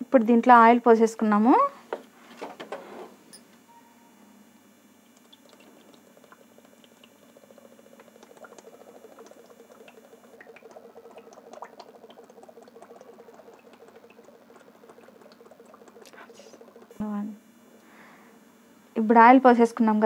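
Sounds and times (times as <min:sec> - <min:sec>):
oil trickling into a pan: 0:05.2 - 0:16.9.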